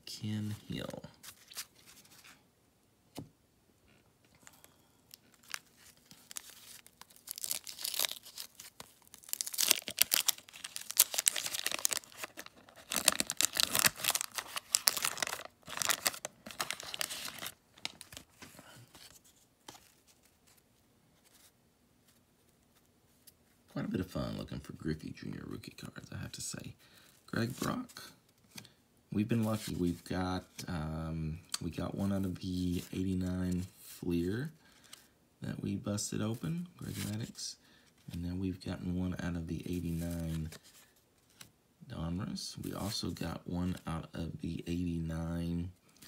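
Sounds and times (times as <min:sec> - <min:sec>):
wax paper tearing and crinkling: 0:05.1 - 0:18.4.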